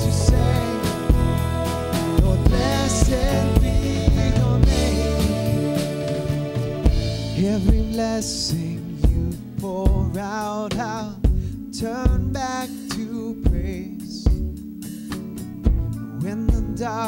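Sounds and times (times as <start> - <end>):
electric guitar: 0.0 - 11.5
steady drum beat: 0.0 - 11.5, 12.1 - 16.8
acoustic guitar: 0.0 - 17.0
bass guitar: 0.0 - 17.0.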